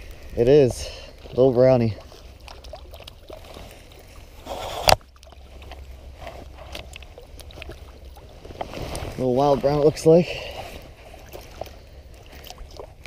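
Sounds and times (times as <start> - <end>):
rustle: 0.0 - 13.0
camera handling rumble: 4.4 - 7.7.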